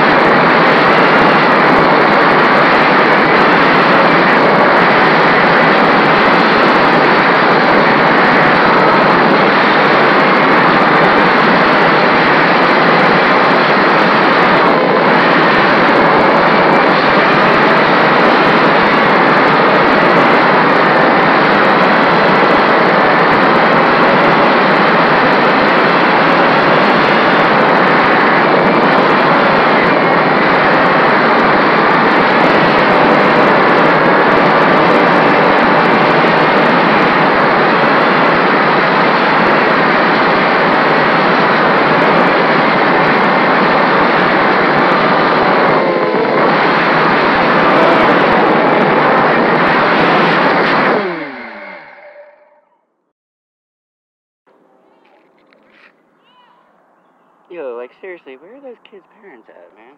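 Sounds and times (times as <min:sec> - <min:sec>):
quadcopter motors whirring: 0:44.0 - 0:52.3.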